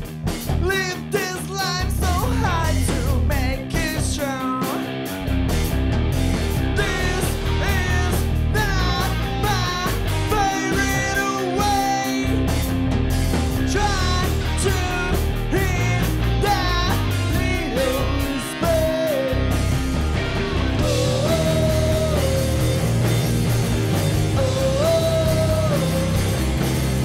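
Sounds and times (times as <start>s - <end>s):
bass guitar: 0.0s - 27.0s
drum kit: 0.0s - 27.0s
electric guitars: 0.0s - 27.0s
man singing lead vocal: 0.5s - 5.0s, 6.6s - 12.5s, 13.5s - 19.7s, 20.8s - 23.2s, 24.2s - 26.8s.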